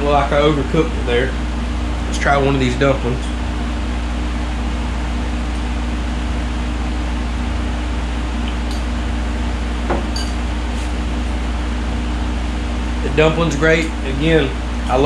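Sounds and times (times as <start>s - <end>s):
air conditioner humming: 0.0s - 15.0s.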